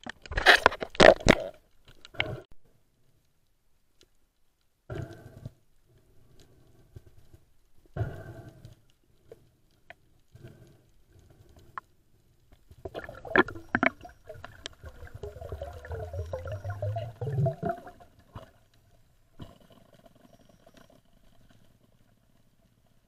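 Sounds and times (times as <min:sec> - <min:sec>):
faint underwater ticks: 0:01.7 - 0:23.0
water rushing and gurgling: 0:12.8 - 0:18.5.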